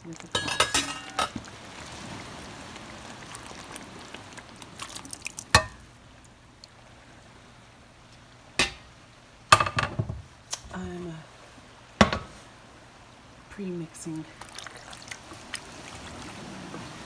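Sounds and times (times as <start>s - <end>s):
metal cookware clanks: 0.3s - 1.4s
sauce squishing: 2.7s - 5.9s, 14.4s - 16.7s.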